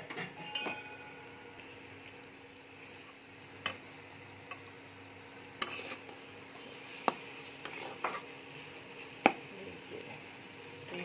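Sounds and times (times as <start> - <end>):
faint frying sizzle: 0.0 - 11.0
metal spatula scraping pan: 5.6 - 8.4.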